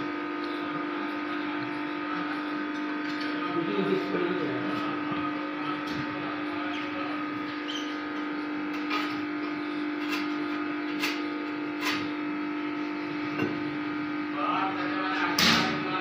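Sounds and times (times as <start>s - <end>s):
welding machine humming: 0.0s - 16.0s.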